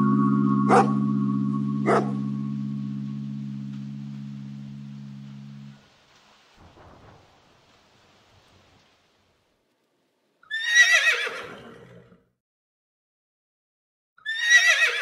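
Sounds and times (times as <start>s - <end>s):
horse whinnying: 10.4s - 12.2s, 14.2s - 15.0s.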